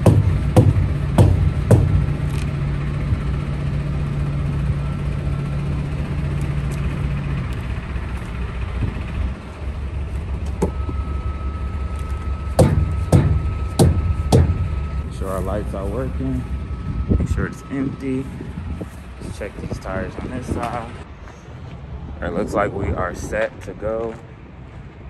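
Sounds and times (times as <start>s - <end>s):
sharp knocks: 0.0s - 2.3s, 12.6s - 14.7s
diesel truck engine idling: 0.0s - 25.0s.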